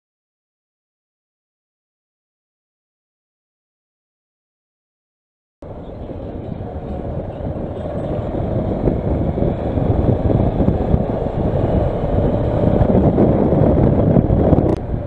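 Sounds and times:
motorcycle accelerating: 5.6s - 15.0s
wind noise: 5.6s - 15.0s.

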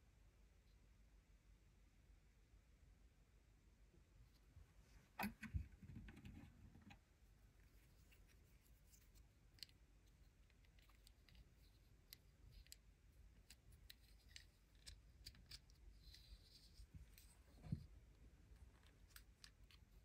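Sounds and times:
plastic toy parts clicking: 10.4s - 16.4s.

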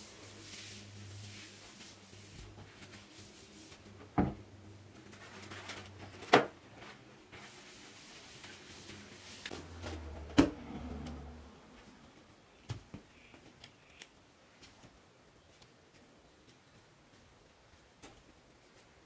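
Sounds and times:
paper towel rustling and tearing: 4.9s - 10.3s.

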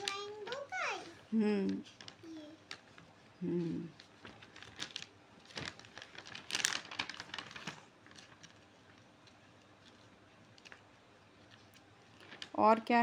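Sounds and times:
pages turning: 0.0s - 1.1s, 3.9s - 12.6s
plastic bag rustling: 0.0s - 12.9s.

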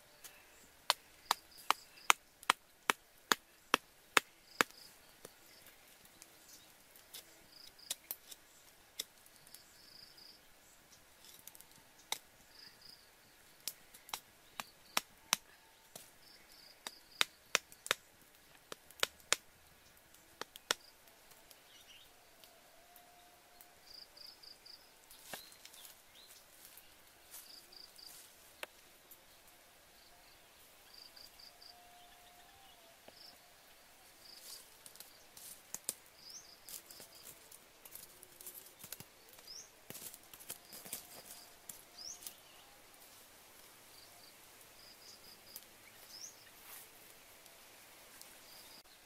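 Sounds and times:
soft clicks and crackles: 34.2s - 42.4s.

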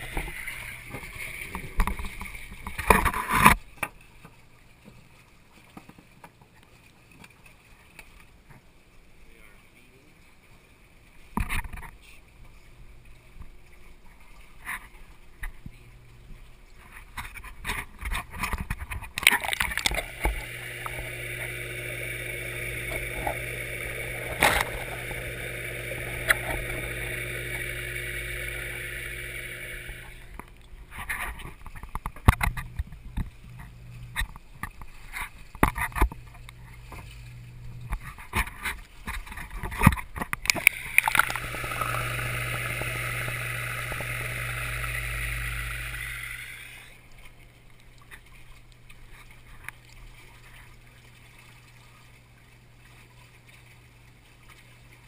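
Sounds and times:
water splashing: 16.4s - 44.9s, 46.4s - 55.0s
low hum: 19.4s - 31.0s, 40.4s - 47.0s.

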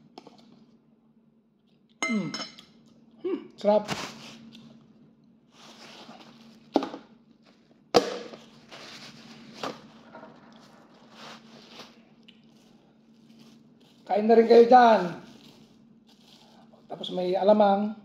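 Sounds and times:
faint low hum: 0.0s - 18.0s
plastic bags rustling: 5.5s - 17.0s.

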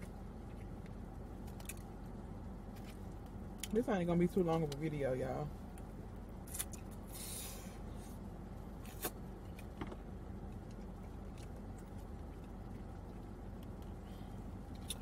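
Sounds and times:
quiet chewing: 0.0s - 3.8s, 10.4s - 15.0s
low hum inside a car: 0.0s - 15.0s.

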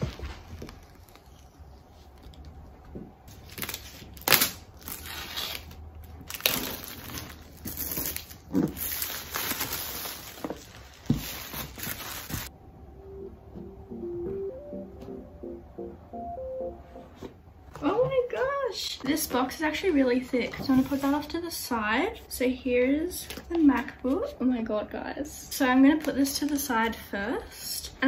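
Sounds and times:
paper wrap tearing: 3.4s - 12.5s
music: 13.0s - 17.2s.

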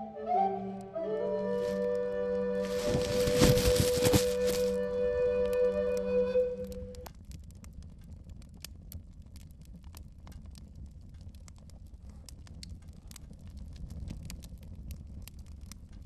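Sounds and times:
held musical note: 0.0s - 7.1s
faint low rumble: 1.6s - 16.0s.

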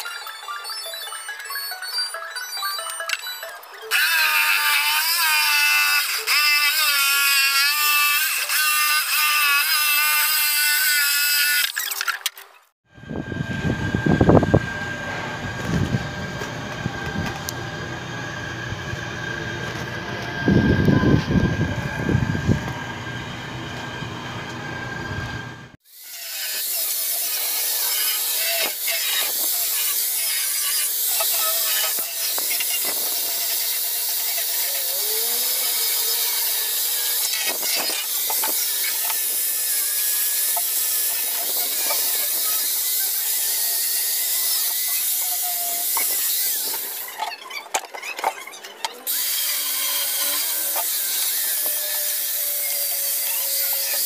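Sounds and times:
power tool whining: 2.6s - 12.3s, 13.0s - 54.0s
deep humming: 12.9s - 25.8s
squeaks: 44.4s - 50.8s.

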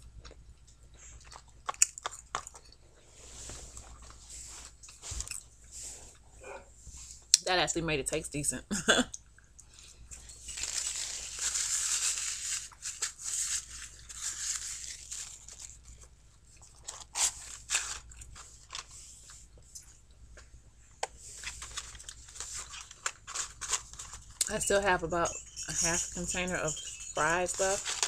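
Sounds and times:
food packaging rustling: 1.3s - 6.1s, 10.2s - 19.4s, 21.2s - 24.9s, 26.3s - 28.0s.

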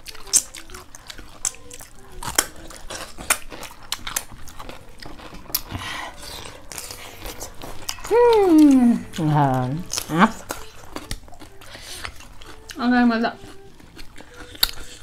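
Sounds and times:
crunching bites and chewing: 0.0s - 12.8s, 13.4s - 15.0s
wet mouth clicks: 14.3s - 15.0s.

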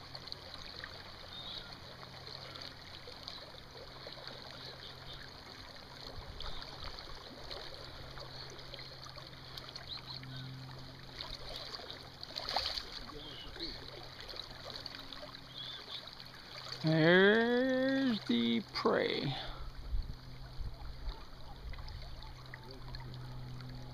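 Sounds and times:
river current rushing: 0.0s - 19.8s
fish splashing at surface: 11.2s - 14.8s.

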